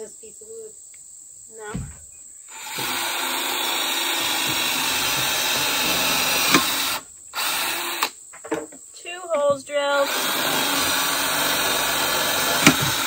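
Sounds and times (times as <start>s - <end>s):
cordless drill boring into wood: 2.5s - 8.2s, 10.0s - 13.0s.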